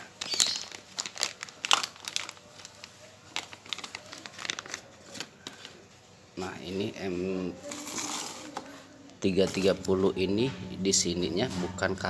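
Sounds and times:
plastic bag crinkling: 0:00.0 - 0:05.9, 0:07.6 - 0:09.8.

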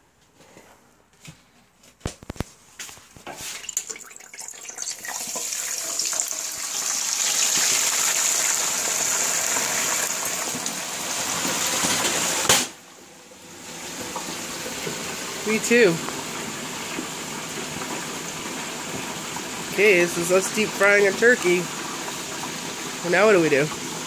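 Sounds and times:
hot oil sizzling and bubbling: 0:03.3 - 0:24.0.

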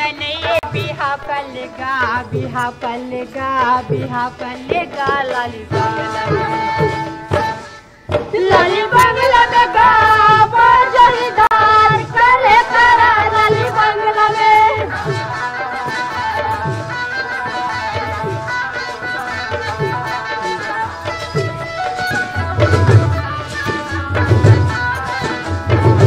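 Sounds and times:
person singing: 0:08.3 - 0:26.0.

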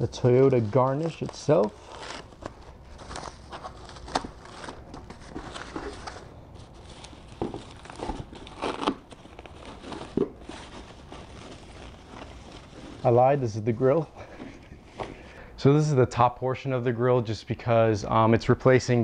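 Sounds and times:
packing paper crinkling: 0:00.0 - 0:14.0.

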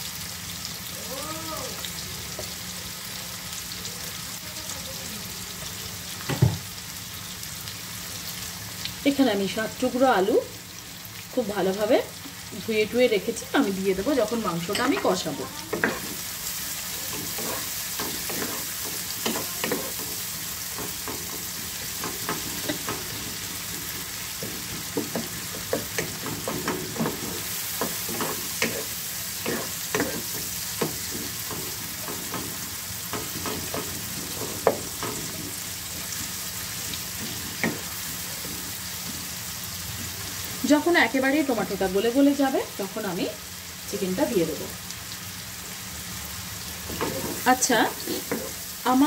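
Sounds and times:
onions and tomatoes sizzling in oil: 0:00.0 - 0:49.0
wooden spatula scraping a pan: 0:17.0 - 0:39.4, 0:46.9 - 0:48.7.

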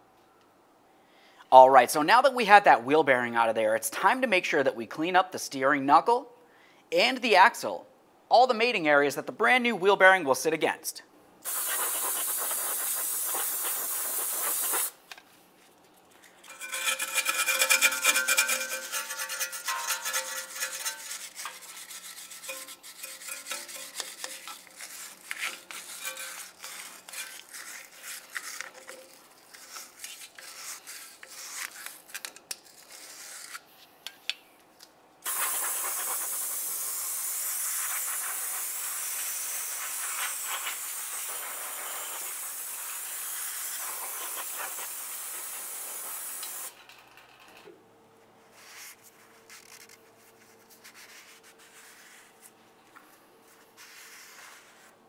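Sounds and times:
aerosol cleaner spraying: 0:11.4 - 0:15.0, 0:35.2 - 0:46.8
wire brush scrubbing metal: 0:16.4 - 0:31.9, 0:37.8 - 0:46.7
rag rubbing: 0:16.5 - 0:31.9.

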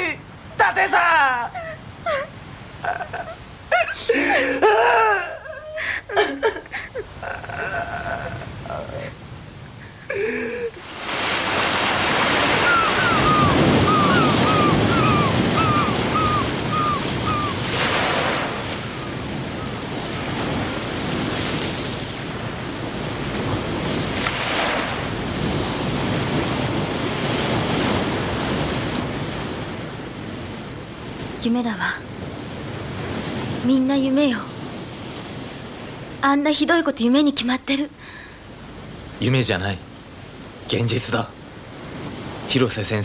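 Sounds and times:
ocean surf washing ashore: 0:00.0 - 0:43.0
bird chirping: 0:12.8 - 0:17.6.

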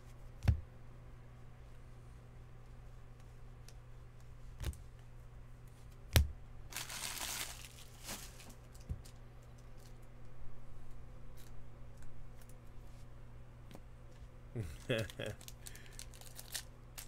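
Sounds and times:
foil wrapper crinkling: 0:06.7 - 0:09.2, 0:14.8 - 0:17.0.

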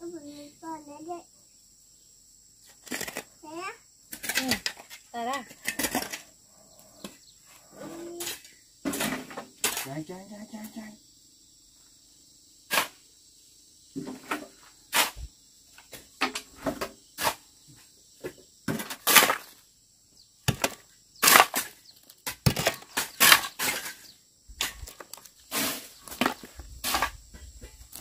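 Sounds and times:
metal shovel scraping dirt: 0:02.7 - 0:03.3, 0:07.6 - 0:10.0, 0:12.7 - 0:13.0, 0:14.0 - 0:15.3, 0:15.9 - 0:17.4, 0:18.7 - 0:19.6, 0:20.5 - 0:28.0.

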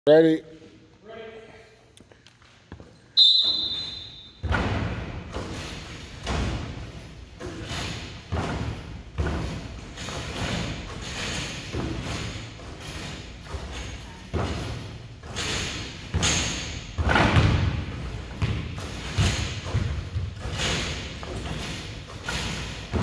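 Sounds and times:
basketballs bouncing on wooden floor: 0:02.7 - 0:23.0.

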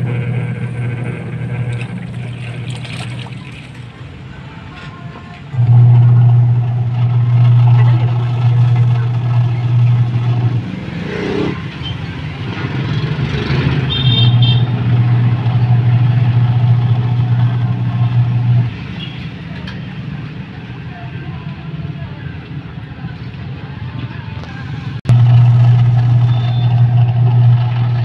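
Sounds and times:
washing machine motor humming: 0:00.0 - 0:18.9, 0:25.0 - 0:28.0.

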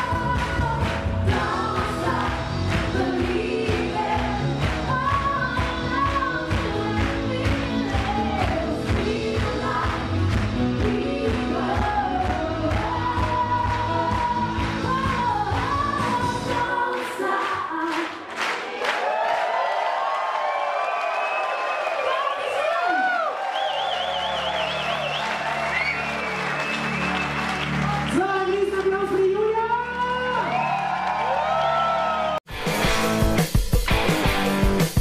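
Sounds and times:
live pop band playing: 0:00.0 - 0:16.6, 0:32.5 - 0:35.0
lead and backing vocals: 0:00.0 - 0:19.1.

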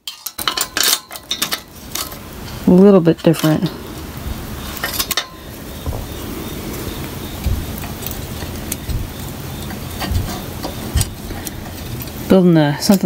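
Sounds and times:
metal springs clinking: 0:00.0 - 0:13.0
dull knocks: 0:05.8 - 0:06.4, 0:07.4 - 0:08.2, 0:08.8 - 0:09.2, 0:10.0 - 0:11.2.

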